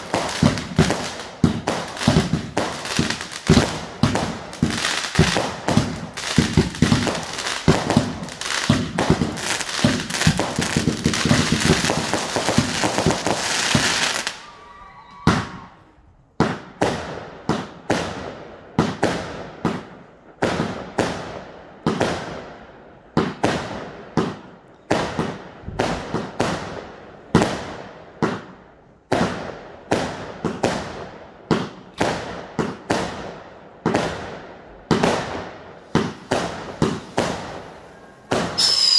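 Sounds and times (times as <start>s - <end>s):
firework bangs: 0.0s - 14.6s, 15.2s - 38.9s
firework fountains crackling: 0.0s - 15.6s, 35.7s - 38.9s.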